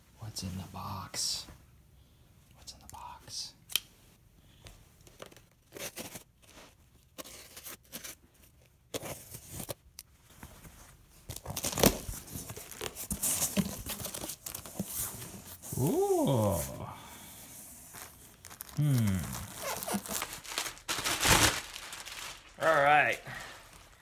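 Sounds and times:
cardboard flaps rustling: 10.4 - 15.9, 18.0 - 22.6
packing tape tearing: 11.3 - 14.8, 18.0 - 22.7
plastic wrap crinkling: 11.3 - 16.7, 17.8 - 24.0.

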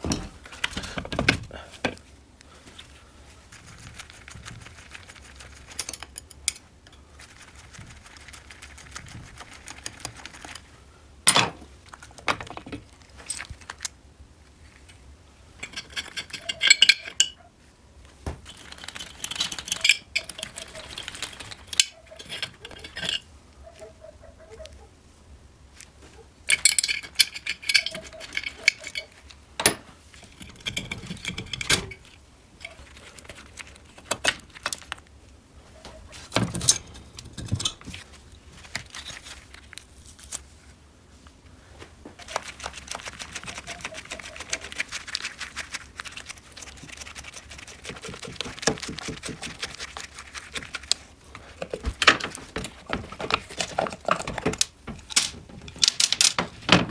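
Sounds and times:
metal engine parts clinking: 15.6 - 17.4, 19.0 - 23.3, 26.5 - 32.2.

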